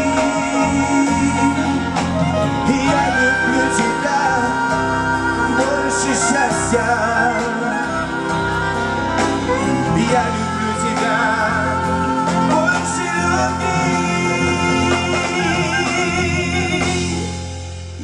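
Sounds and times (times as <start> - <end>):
wordless singing: 0.0 - 17.5
live band playing slow ballad: 0.0 - 18.0.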